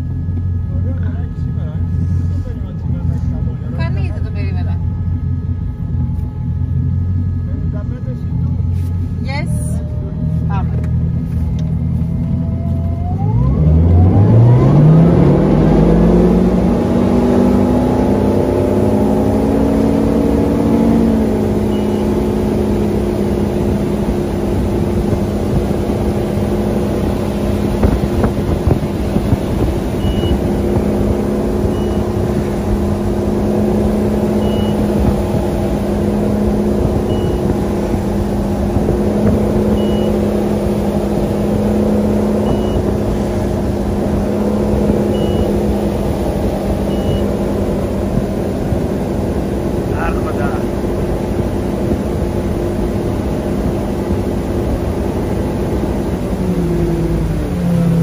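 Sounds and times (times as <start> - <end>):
boat engine revving: 0.0 - 58.0
rush of wake and wind: 13.3 - 58.0
short high-pitched beeps: 21.6 - 22.3, 29.9 - 30.5, 31.6 - 32.2, 34.3 - 35.0, 37.0 - 37.5, 39.7 - 40.3, 42.4 - 42.9, 45.1 - 45.6, 46.8 - 47.4.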